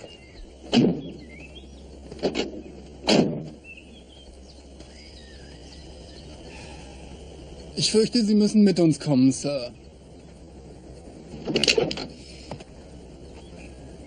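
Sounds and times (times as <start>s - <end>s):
birds chirping: 0.0s - 14.0s
outdoor background hum: 0.0s - 14.0s
sharp knocks: 0.6s - 1.2s, 2.2s - 3.6s.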